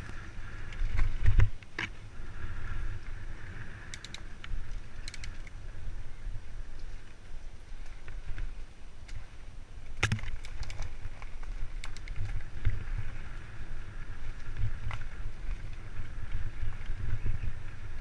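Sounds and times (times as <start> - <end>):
bike tyre noise on dirt: 0.0 - 18.0
wind buffeting microphone: 0.0 - 18.0
bike rattling and knocking: 10.0 - 13.2.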